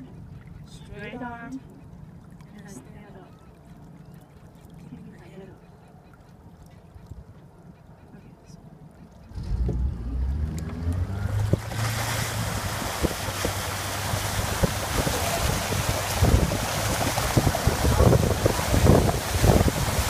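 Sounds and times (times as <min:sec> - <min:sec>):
rushing water from wake: 0:09.0 - 0:20.0
motorboat engine speeding up: 0:09.1 - 0:20.0
wind on microphone: 0:10.8 - 0:20.0.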